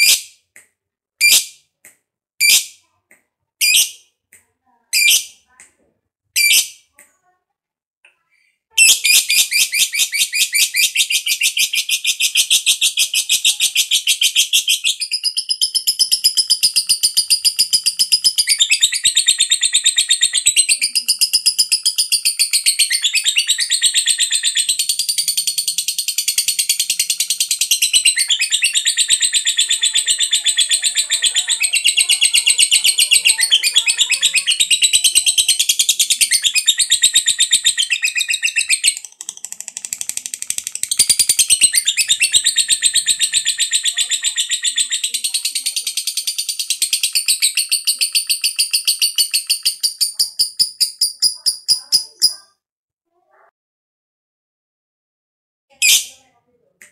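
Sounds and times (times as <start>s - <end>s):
lovebird chattering trill: 8.8s - 52.4s.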